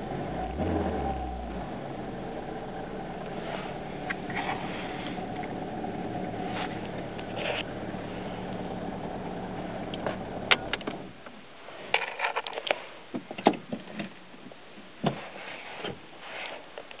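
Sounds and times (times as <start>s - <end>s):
car engine idling: 0.0s - 11.3s.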